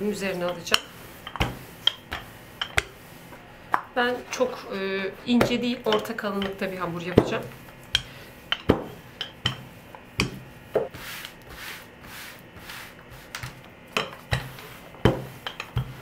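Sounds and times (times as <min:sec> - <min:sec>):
hands rubbing dough: 0:00.0 - 0:16.0
rolling pin rolling dough: 0:00.0 - 0:16.0
rolling pin knocks on countertop: 0:14.0 - 0:15.9.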